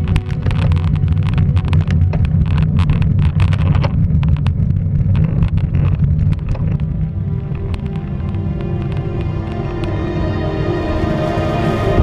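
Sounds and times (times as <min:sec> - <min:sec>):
bike rattling clicks: 0:00.0 - 0:06.9
wind buffeting microphone: 0:00.0 - 0:11.1.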